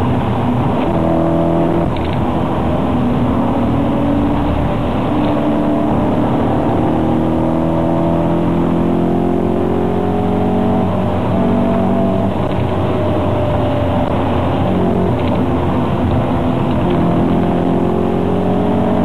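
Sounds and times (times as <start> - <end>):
car engine accelerating: 0.0 - 19.0
road and wind noise: 0.0 - 19.0.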